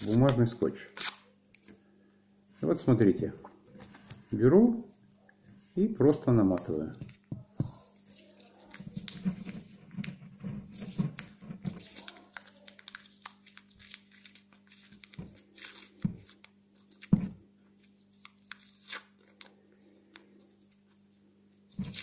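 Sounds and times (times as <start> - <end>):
masking tape crackling and tearing: 7.8 - 19.5, 21.7 - 22.0.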